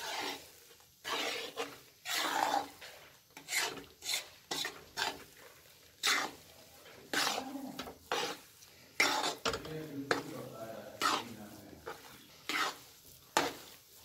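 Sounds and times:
metal spatula scraping a pan: 0.0 - 14.0.

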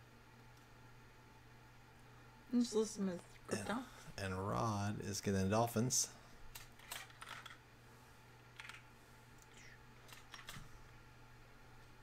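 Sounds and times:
low steady hum: 0.0 - 12.0
computer keyboard clicks: 10.0 - 10.6.

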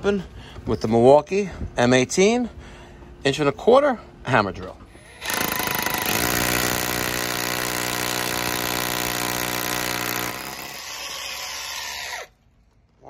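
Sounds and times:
rotary hammer drilling into brick: 5.0 - 12.4.

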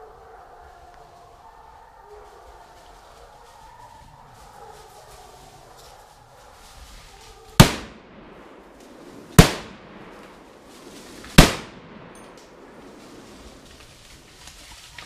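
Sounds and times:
rifle shots with echo: 7.6 - 13.3.

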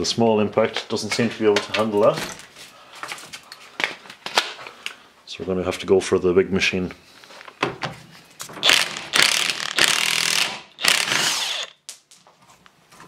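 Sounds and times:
impact wrench hammering: 8.6 - 11.8.

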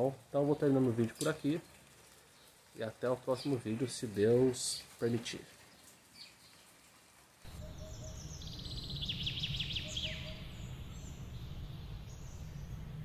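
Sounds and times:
bird trilling high chirps: 7.5 - 13.0
low background rumble: 7.5 - 13.0.

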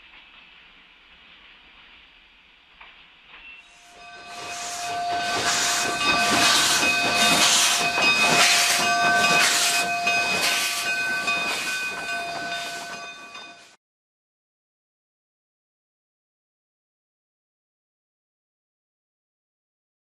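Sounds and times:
steady whistle-like tones: 3.4 - 13.8
steam locomotive puffing: 3.6 - 13.8.

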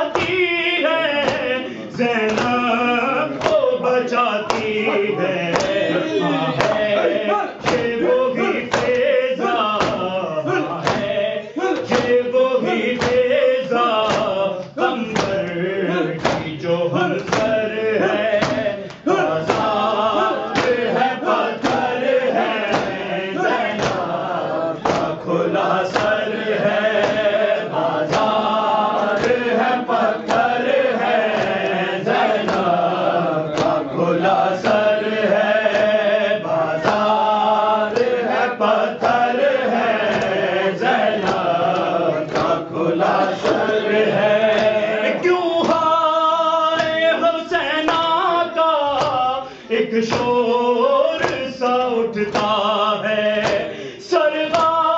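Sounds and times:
group chanting along: 0.0 - 54.9
voices chanting a lament: 0.0 - 54.9
hand slaps on chest: 2.3 - 2.6, 5.5 - 5.8, 7.6 - 7.9, 8.7 - 10.0, 13.0 - 13.2, 13.9 - 14.3, 16.2 - 16.6, 17.2 - 17.6, 20.5 - 20.8, 21.6 - 21.9, 22.7 - 23.1, 23.7 - 24.1, 24.8 - 25.2, 27.0 - 27.3, 31.3 - 32.7, 41.2 - 42.6, 53.4 - 53.7.

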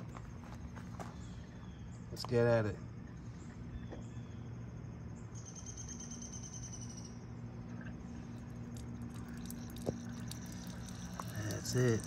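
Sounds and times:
coffee maker humming: 8.4 - 12.0.

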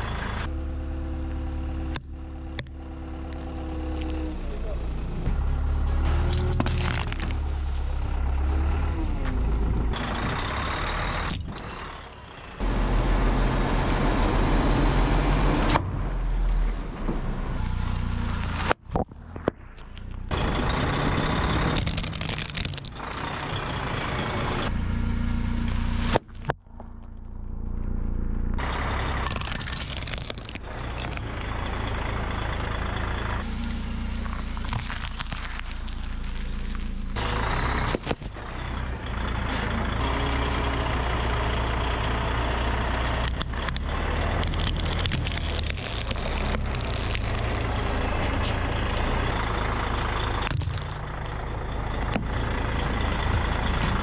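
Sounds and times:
engine running low: 0.0 - 54.0
plastic toys crunching under tyre: 6.2 - 7.6, 21.6 - 23.4, 26.0 - 27.2, 29.1 - 31.8, 33.4 - 38.5, 43.2 - 49.4, 50.4 - 51.4, 52.0 - 54.0.

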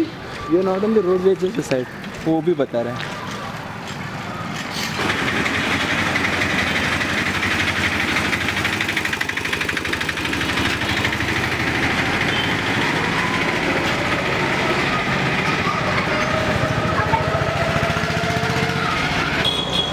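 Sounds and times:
small vehicle engine running: 4.8 - 19.9.

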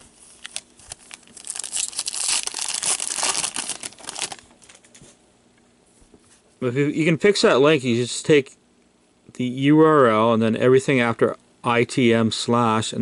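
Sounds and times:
foil wrapper crinkling and tearing: 0.2 - 4.8.

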